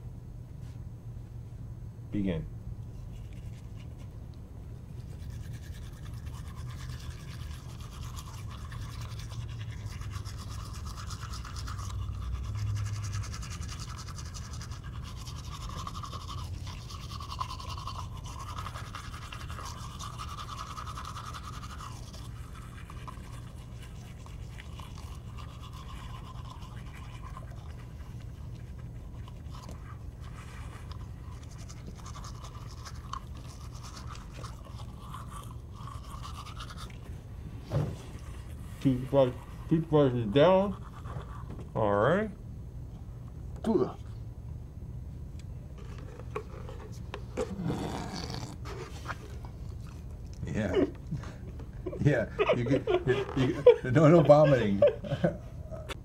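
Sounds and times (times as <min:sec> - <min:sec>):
steady low hum: 0:00.0 - 0:56.0
toothbrushes scrubbing teeth: 0:05.0 - 0:37.2, 0:38.1 - 0:41.5.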